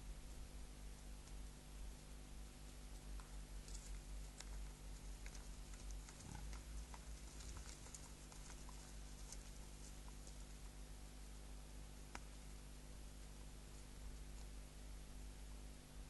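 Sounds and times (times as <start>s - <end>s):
low electrical hum: 0.0s - 16.0s
ticks and crackles: 2.6s - 11.0s, 12.0s - 12.6s.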